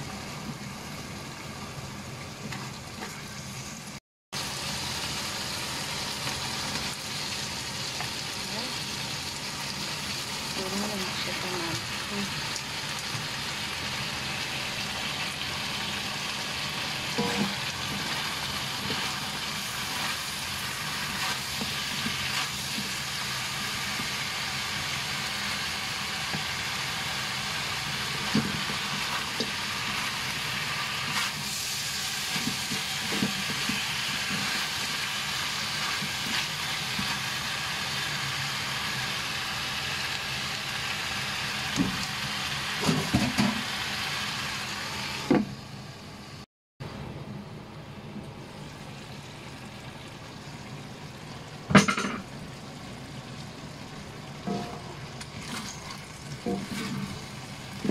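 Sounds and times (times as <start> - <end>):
food sizzling in a wok: 0.0 - 46.4, 48.8 - 57.9
wooden spatula scraping wok: 56.5 - 57.9.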